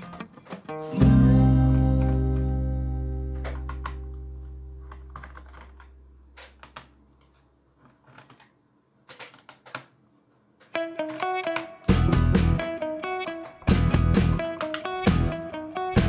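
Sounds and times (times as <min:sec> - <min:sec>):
background music: 0:00.7 - 0:05.3, 0:10.8 - 0:16.0.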